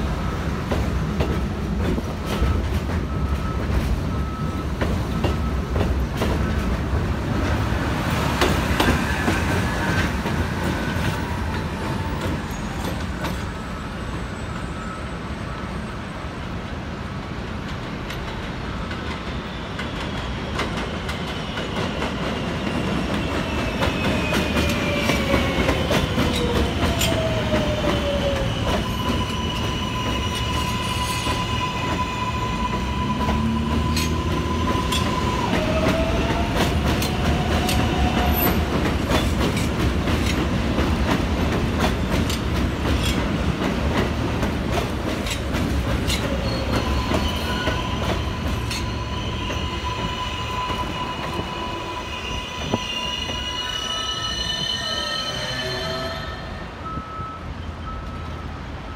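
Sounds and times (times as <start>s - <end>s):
subway train rumbling: 0.0s - 58.9s
high wheel squeal: 19.3s - 38.6s, 46.0s - 57.5s
wheels clacking over rail joints: 32.6s - 51.4s.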